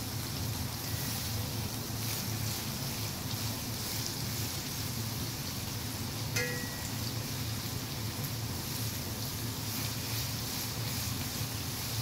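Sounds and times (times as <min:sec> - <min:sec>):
low steady hum: 0:00.0 - 0:12.0
onions sizzling in hot oil: 0:00.0 - 0:12.0
spatula stirring in pan: 0:00.9 - 0:05.6, 0:08.5 - 0:12.0.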